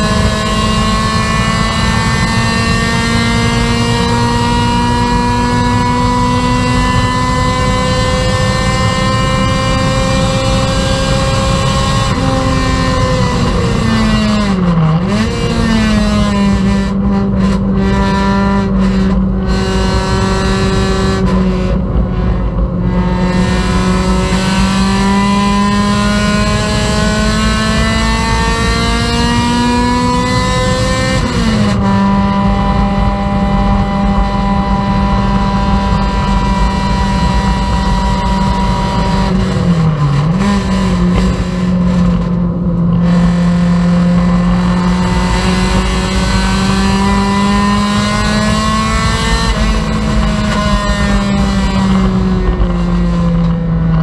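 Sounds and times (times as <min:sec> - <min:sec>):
race car engine running hard: 0:00.0 - 0:54.0.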